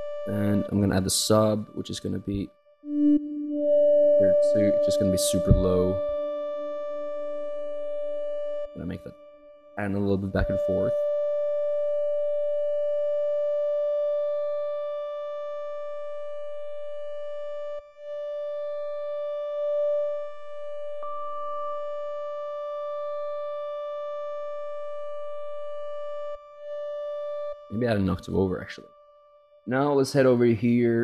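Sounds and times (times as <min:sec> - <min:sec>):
synthesizer pad note: 0:02.8 - 0:11.1.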